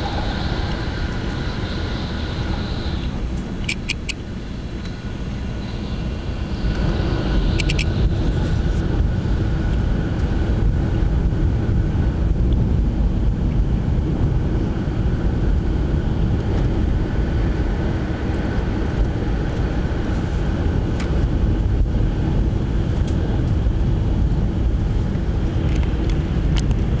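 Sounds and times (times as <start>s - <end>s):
train rumble inside cabin: 0.0s - 27.0s.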